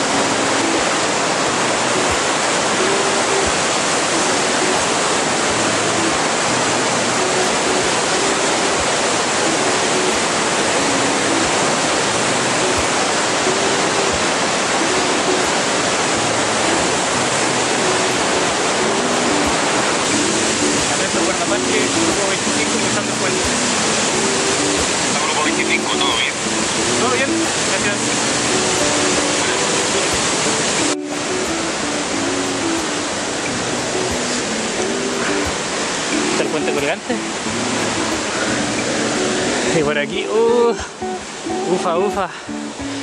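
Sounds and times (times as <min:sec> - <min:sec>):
river rapids rushing: 0:00.0 - 0:43.0.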